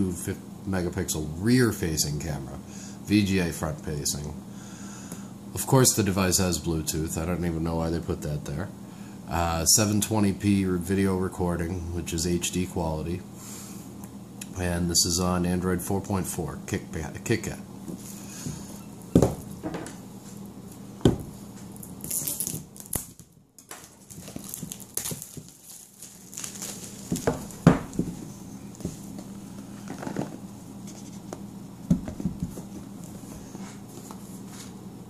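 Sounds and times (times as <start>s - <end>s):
packaging scratching and crinkling: 21.7s - 28.5s.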